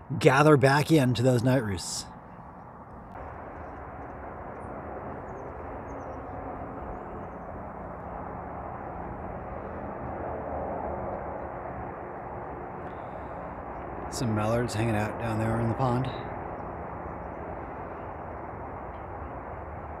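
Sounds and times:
distant engine drone: 0:00.0 - 0:20.0.

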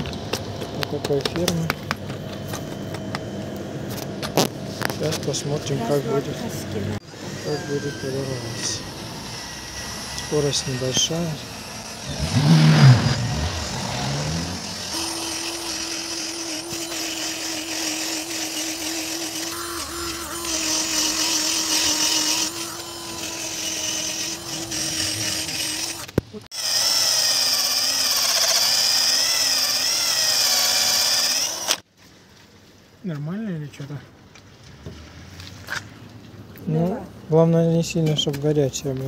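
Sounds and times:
cordless drill whine: 0:07.0 - 0:31.8.

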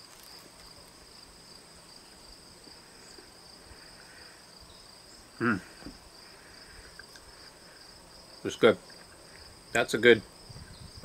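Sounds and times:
insect trilling: 0:00.0 - 0:11.0
person making short vocal sound: 0:05.4 - 0:05.9.

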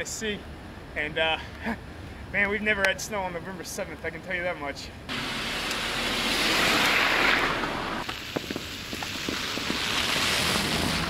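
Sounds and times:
car tyres hissing on slush: 0:05.1 - 0:11.0.

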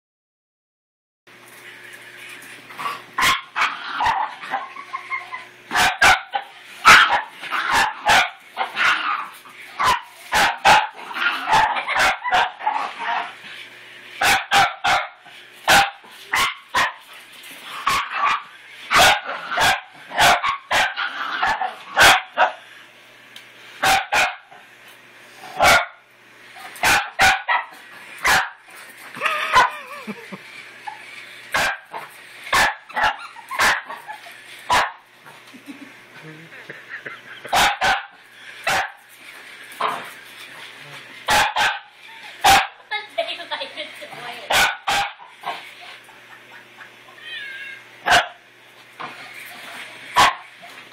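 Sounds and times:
small dog barking: 0:03.2 - 0:04.7, 0:05.7 - 0:13.3, 0:14.2 - 0:17.0, 0:17.8 - 0:22.6, 0:23.8 - 0:24.5, 0:25.6 - 0:26.0, 0:26.8 - 0:28.6, 0:29.2 - 0:29.9, 0:31.6 - 0:34.1, 0:34.7 - 0:35.0, 0:37.5 - 0:39.0, 0:41.3 - 0:42.8, 0:44.5 - 0:45.2, 0:48.1 - 0:48.4, 0:50.2 - 0:50.5.

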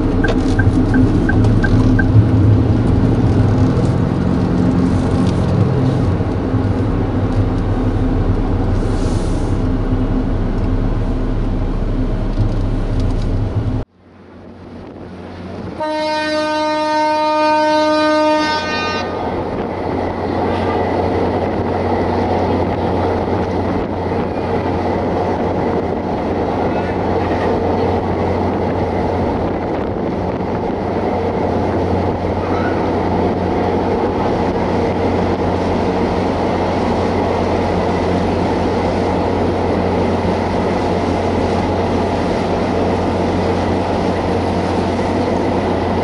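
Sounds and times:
car engine and road noise: 0:00.0 - 0:15.8, 0:19.0 - 0:46.0
ship engine and water rumble: 0:00.0 - 0:46.0
ship horn long blast: 0:15.6 - 0:19.5.

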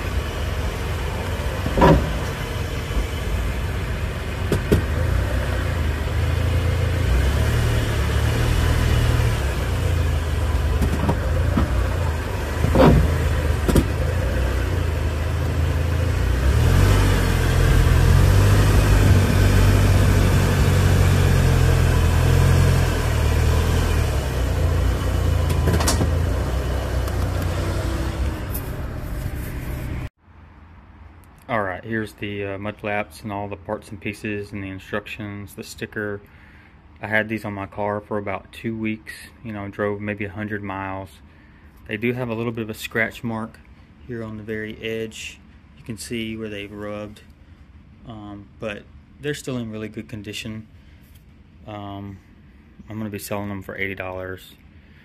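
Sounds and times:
car driving on paved road: 0:00.0 - 0:30.1
sharp knocks: 0:01.6 - 0:02.4, 0:10.8 - 0:11.8, 0:12.6 - 0:14.0.

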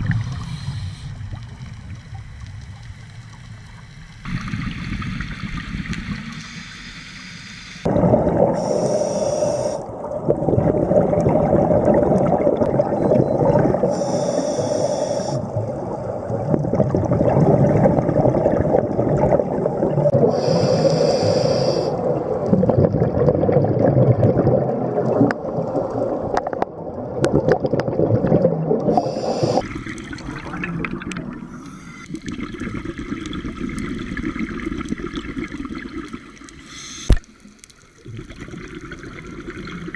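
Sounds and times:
bubbling exhaust bubbles: 0:00.0 - 0:00.6, 0:07.8 - 0:08.6, 0:09.8 - 0:13.9, 0:15.4 - 0:20.4, 0:21.9 - 0:31.5, 0:32.1 - 0:36.6, 0:38.0 - 0:39.9
regulator inhale hiss: 0:00.2 - 0:01.3, 0:06.4 - 0:07.9, 0:08.6 - 0:09.8, 0:13.9 - 0:15.5, 0:20.2 - 0:22.0, 0:28.9 - 0:29.7, 0:36.6 - 0:37.2.

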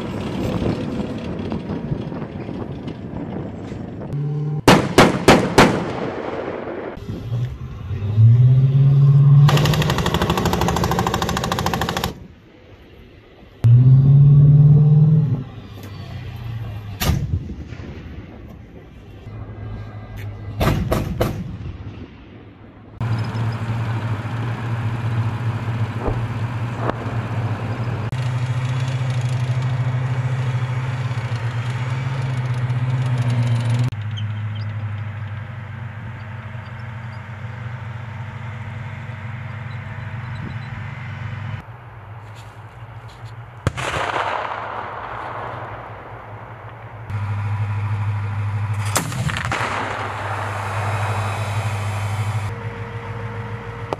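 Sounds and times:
loud steady engine drone: 0:00.0 - 0:05.2, 0:06.9 - 0:17.1, 0:22.7 - 0:43.6, 0:46.1 - 0:53.9
armored vehicle engine and tracks: 0:00.0 - 0:53.9
sharp bangs: 0:04.2 - 0:07.1, 0:20.6 - 0:22.6, 0:43.6 - 0:47.2, 0:48.7 - 0:52.5.

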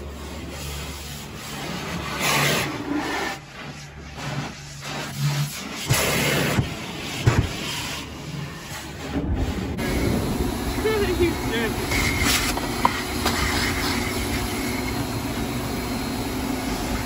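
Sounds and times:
pressure wand spraying water: 0:00.0 - 0:17.0
steady low hum: 0:03.5 - 0:17.0.

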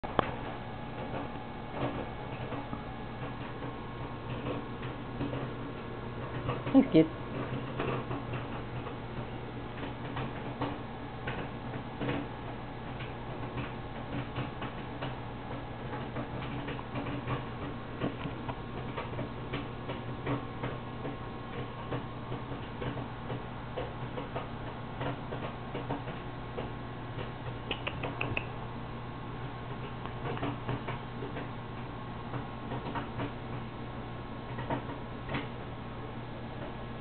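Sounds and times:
steady low hum: 0:00.0 - 0:37.0
sharp ticks: 0:27.7 - 0:28.5.

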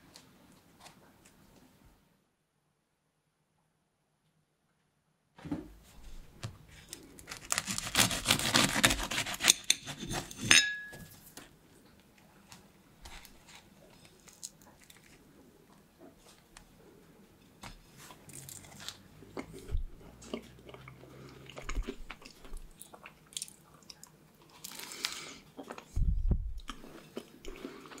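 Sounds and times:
pastry crackling and crunching: 0:06.9 - 0:10.3, 0:12.5 - 0:15.8.

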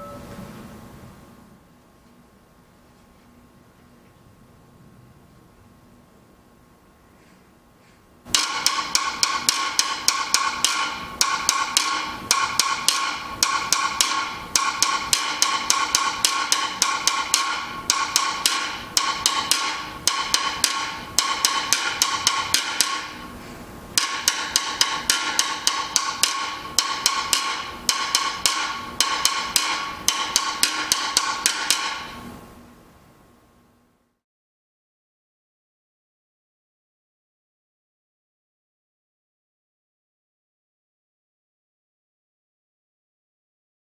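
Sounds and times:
guiro scraped and tapped: 0:07.2 - 0:32.4.

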